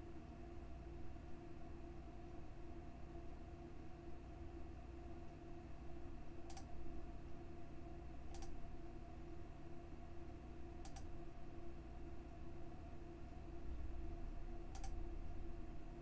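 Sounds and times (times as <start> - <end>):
low electrical hum: 0.0 - 16.0
computer mouse clicks: 6.4 - 6.7, 8.3 - 8.6, 10.8 - 11.1, 14.7 - 15.0.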